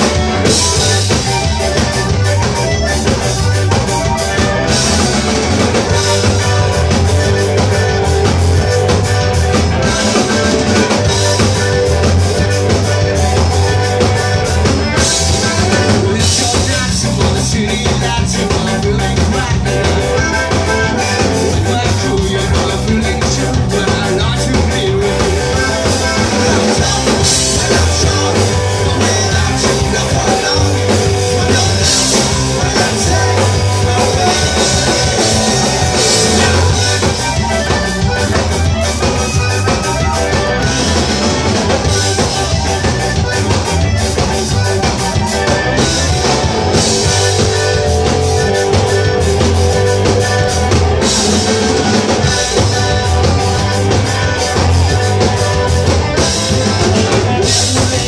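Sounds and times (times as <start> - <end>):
accordion: 0.0 - 58.0
distorted electric guitar: 0.0 - 58.0
driving drum kit beat: 0.0 - 58.0
electric bass: 0.0 - 58.0
man singing into a microphone: 15.3 - 37.3, 57.4 - 58.0.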